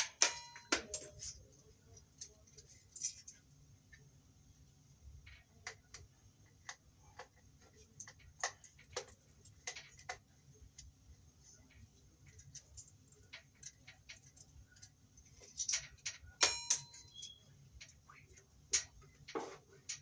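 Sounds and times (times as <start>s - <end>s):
ringing metallic clink: 0.1s - 1.2s, 16.4s - 17.4s.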